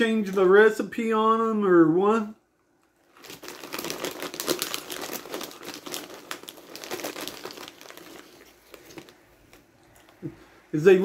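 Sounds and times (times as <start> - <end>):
crunchy snack being chewed: 3.2 - 10.2.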